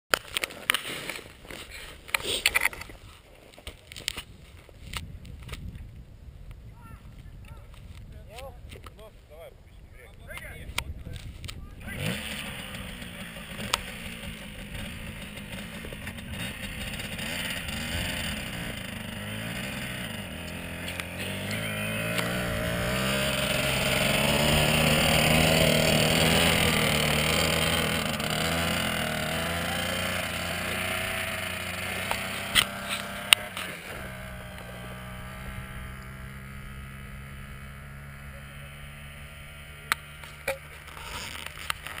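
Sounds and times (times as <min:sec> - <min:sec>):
dirt bike engine revving: 0:11.8 - 0:42.0.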